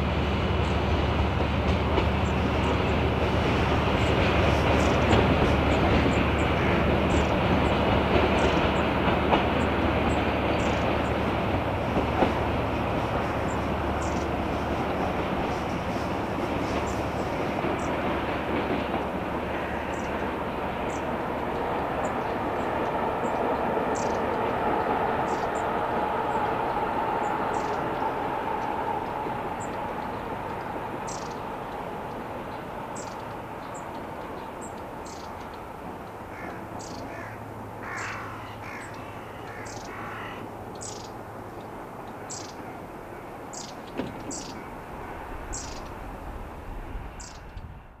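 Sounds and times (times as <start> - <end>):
freight train running: 0.0 - 48.0
crow cawing: 19.5 - 20.2, 36.3 - 40.5.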